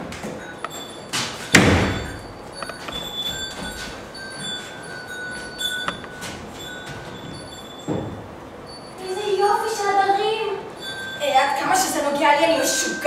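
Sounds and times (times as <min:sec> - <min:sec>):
door banging shut: 0:01.5 - 0:02.3.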